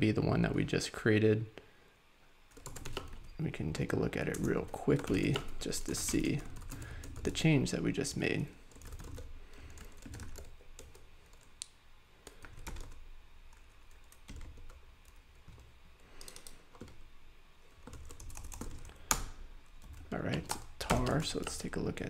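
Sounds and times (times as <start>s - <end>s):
keyboard typing: 2.5s - 3.3s, 4.3s - 7.4s, 8.7s - 11.5s, 12.2s - 17.0s, 17.6s - 21.7s.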